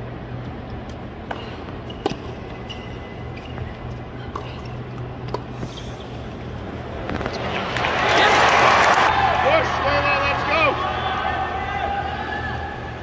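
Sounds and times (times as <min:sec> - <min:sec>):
tennis ball strikes and bounces: 0:00.9 - 0:02.7.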